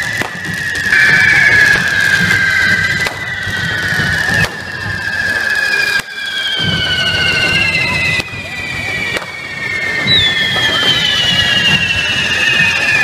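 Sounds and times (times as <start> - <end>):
shrill whistles of firework fountains: 0.0 - 13.0.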